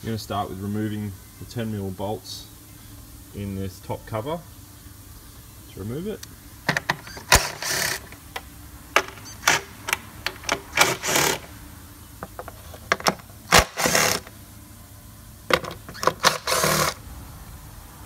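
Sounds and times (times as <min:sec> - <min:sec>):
cordless power tool spinning: 0:06.7 - 0:08.3, 0:09.0 - 0:11.5, 0:12.4 - 0:14.3, 0:15.5 - 0:17.0.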